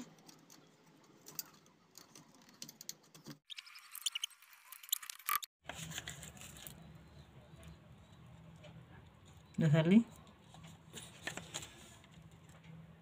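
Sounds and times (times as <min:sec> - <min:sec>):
hands working small parts: 0:00.0 - 0:07.0.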